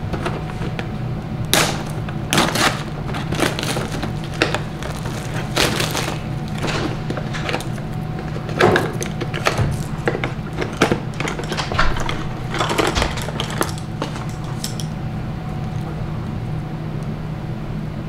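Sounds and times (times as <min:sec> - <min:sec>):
plastic wrappers crinkling: 0:00.0 - 0:15.0
steady low hum: 0:00.0 - 0:18.0.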